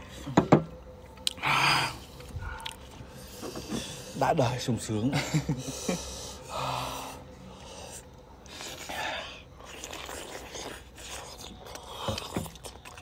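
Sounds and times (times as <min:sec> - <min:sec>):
mouth clicks and chewing: 0:02.2 - 0:02.9, 0:09.6 - 0:13.0
breathy exhales: 0:05.6 - 0:08.2.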